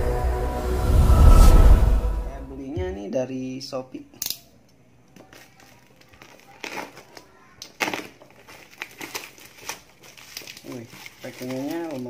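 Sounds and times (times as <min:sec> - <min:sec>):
plastic wrapping crinkling: 0:05.1 - 0:12.0.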